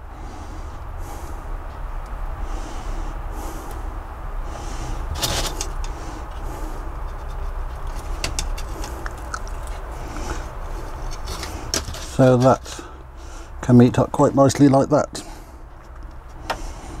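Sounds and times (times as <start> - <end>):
steady low hum: 0.0 - 17.0
small metallic clicks and scrapes: 5.1 - 12.8.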